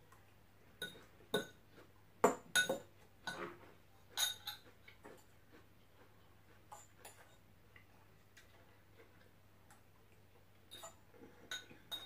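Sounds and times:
metal fork clinking on ceramic bowl: 0.8s - 1.6s, 2.5s - 2.8s, 4.2s - 4.7s, 10.7s - 12.0s.

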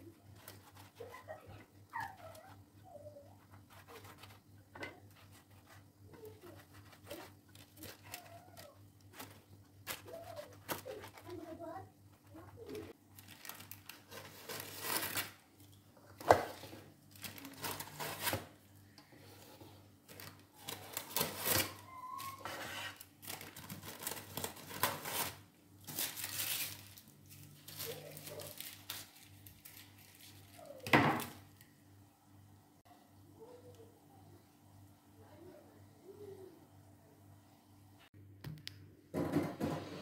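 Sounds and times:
baking paper rustling: 0.0s - 18.6s, 19.3s - 31.6s.

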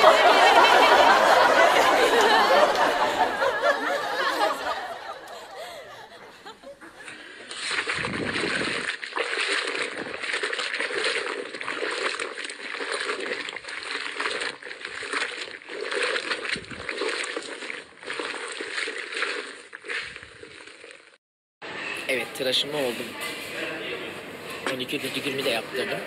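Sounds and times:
voices and laughter: 0.0s - 7.4s
soapy cloth sloshing in water: 6.9s - 21.2s.

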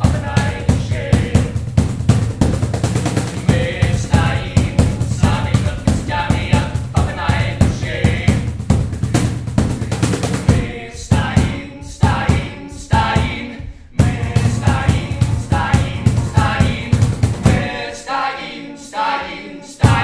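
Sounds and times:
men singing in a group: 0.0s - 1.6s, 3.3s - 8.6s, 10.0s - 20.0s
acoustic guitar: 0.0s - 17.9s
drum beat: 0.0s - 17.9s, 19.8s - 20.0s.

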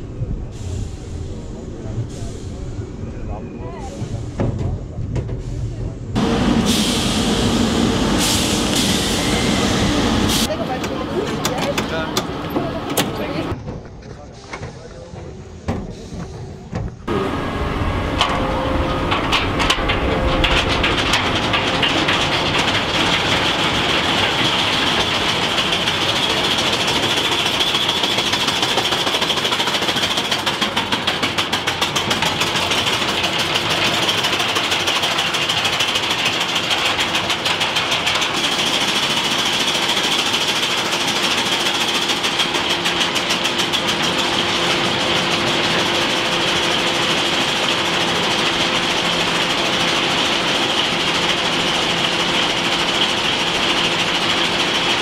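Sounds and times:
chain lift whining: 17.7s - 55.0s.

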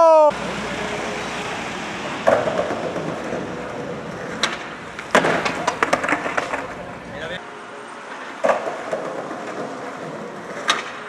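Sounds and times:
skateboard wheels rolling on pavement: 0.0s - 11.0s
board and rider slamming down: 2.2s - 6.8s
skateboard tail cracking: 2.2s - 6.9s
wooden deck clattering: 4.4s - 6.8s.

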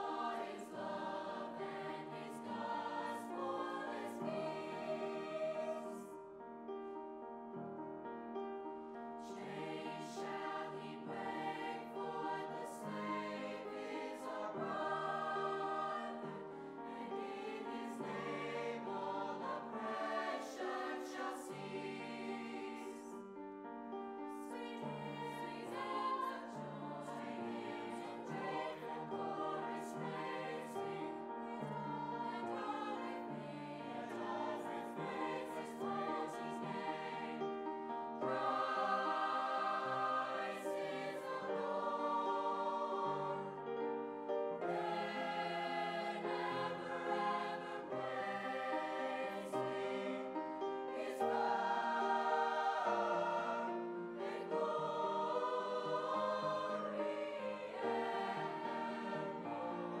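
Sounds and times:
choir singing in harmony: 0.0s - 60.0s.

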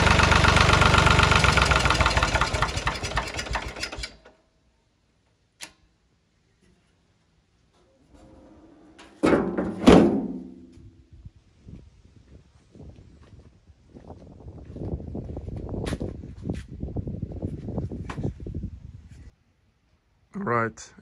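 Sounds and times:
tractor engine running: 0.0s - 4.3s
small click: 5.6s - 5.9s
metal bonnet banging shut: 9.0s - 10.6s.

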